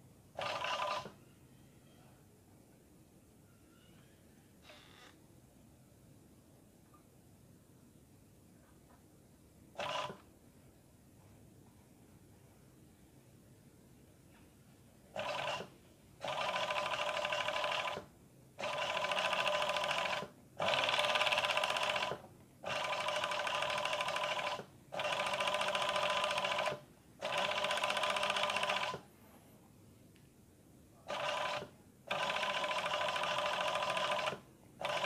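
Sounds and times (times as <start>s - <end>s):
sewing machine stitching: 0.4s - 1.1s, 9.8s - 10.2s, 15.2s - 29.0s, 31.1s - 35.0s.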